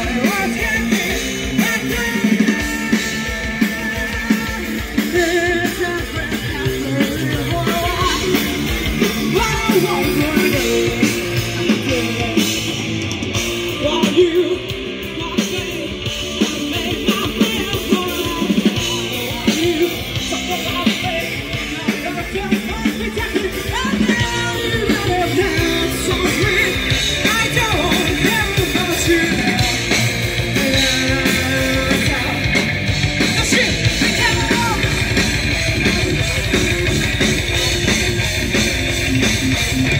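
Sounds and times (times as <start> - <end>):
woman singing lead: 0.0 - 12.8, 13.7 - 32.6
bass guitar: 0.0 - 39.9
drums: 0.0 - 39.9
electric guitars: 0.0 - 39.9.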